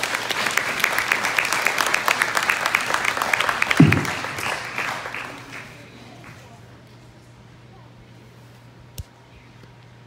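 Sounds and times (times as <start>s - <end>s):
audience applauding: 0.0s - 6.4s
low thump: 3.8s - 4.4s.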